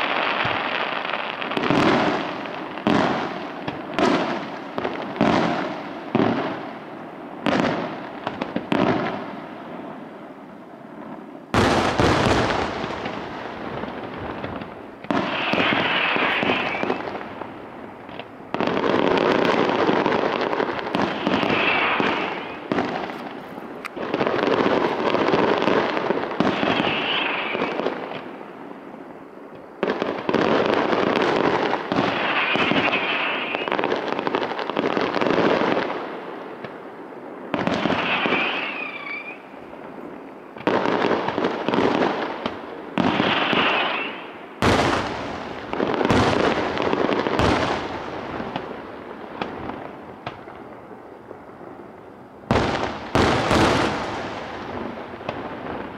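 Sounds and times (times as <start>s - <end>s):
fireworks bursting: 0.0s - 55.9s
fireworks crackling: 0.0s - 55.9s.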